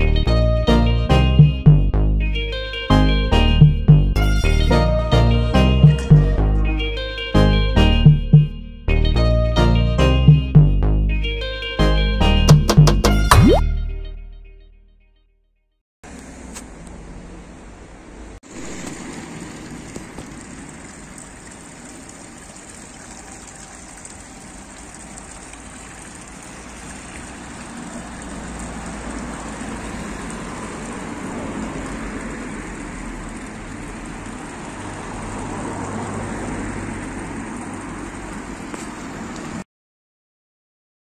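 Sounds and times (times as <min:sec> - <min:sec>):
fountain water splashing: 0:18.4 - 0:39.6.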